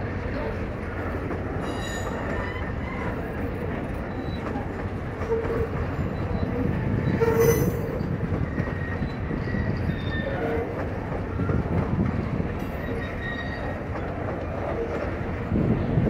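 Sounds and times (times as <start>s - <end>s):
train wheels rumbling on track: 0.0s - 16.0s
train wheels squealing: 1.6s - 11.7s, 12.7s - 14.1s.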